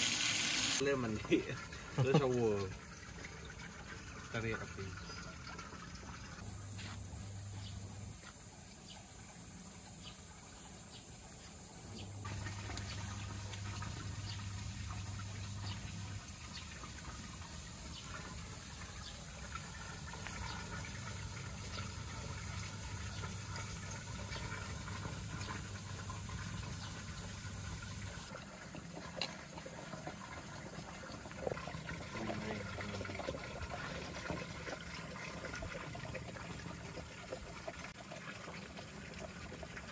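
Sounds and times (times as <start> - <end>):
wood fire crackling: 12.2 - 18.9.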